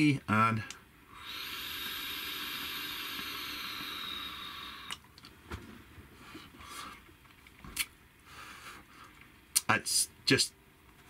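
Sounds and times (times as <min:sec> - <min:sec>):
hiss of air through vaporizer: 0:01.1 - 0:05.0.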